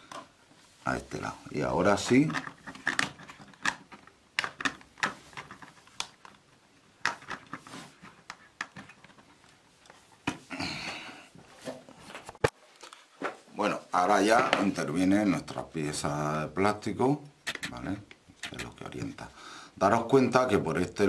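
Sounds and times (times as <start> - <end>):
plastic parts clicking: 2.1 - 9.4.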